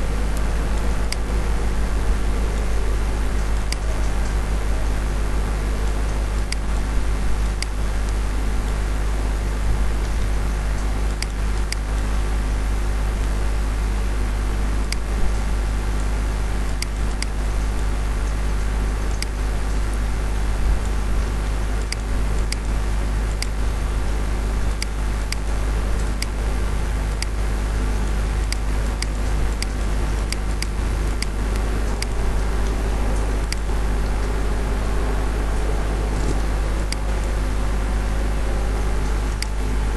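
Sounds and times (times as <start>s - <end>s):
constant hiss: 0.0s - 39.9s
low electrical hum: 0.0s - 39.9s
mouse clicks: 3.7s - 4.1s, 33.5s - 34.2s, 39.3s - 39.6s.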